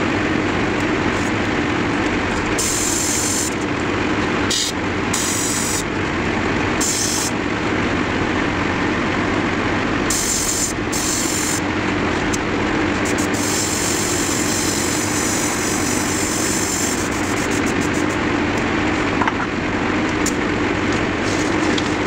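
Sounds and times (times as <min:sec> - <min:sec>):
steady low hum: 0:00.0 - 0:22.0
airbrush spraying hisses: 0:02.6 - 0:03.6, 0:06.8 - 0:07.3, 0:13.1 - 0:18.2.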